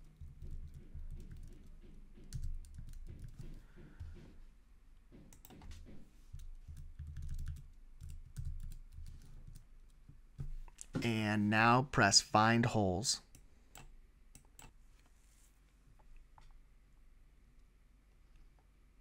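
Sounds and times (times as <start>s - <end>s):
computer keyboard typing: 0.0s - 3.6s, 5.3s - 5.7s, 6.4s - 9.7s.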